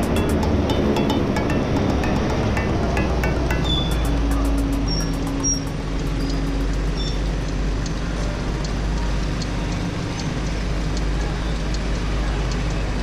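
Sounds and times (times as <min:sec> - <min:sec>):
cars passing: 0:00.0 - 0:11.0.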